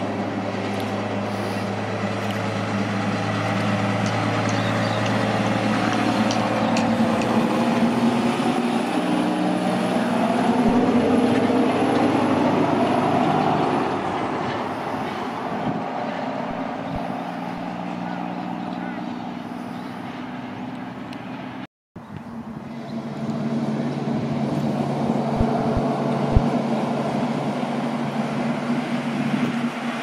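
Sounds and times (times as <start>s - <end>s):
heavy truck engine: 0.0s - 30.0s.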